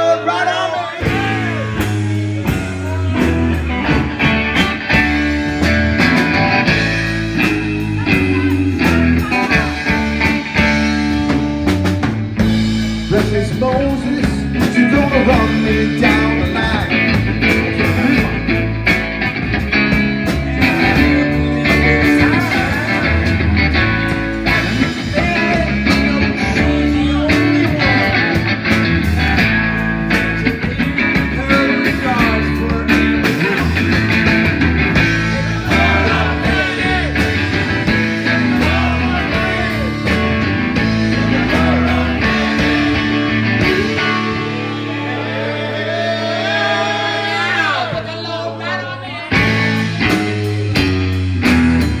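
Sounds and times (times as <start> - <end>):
electric guitar: 0.0 - 48.0, 49.1 - 52.0
drum kit beat: 1.0 - 48.3, 49.3 - 52.0.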